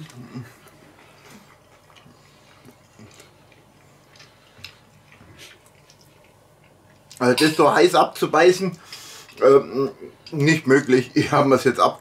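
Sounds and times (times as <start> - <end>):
man chewing: 0.0 - 7.4, 8.8 - 9.5.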